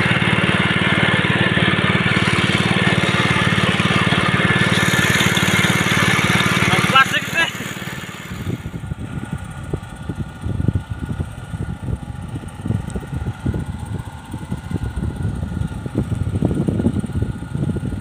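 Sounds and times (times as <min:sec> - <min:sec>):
boat engine humming: 0:00.0 - 0:16.2.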